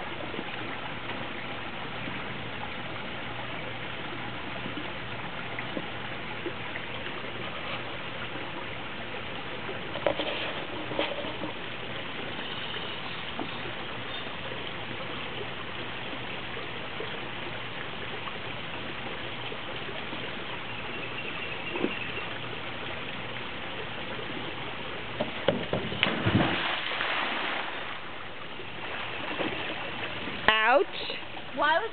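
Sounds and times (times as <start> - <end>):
trickling running water: 0.0 - 31.9
diving board clattering: 25.2 - 28.0
splash into pool: 25.6 - 28.1, 28.8 - 30.2.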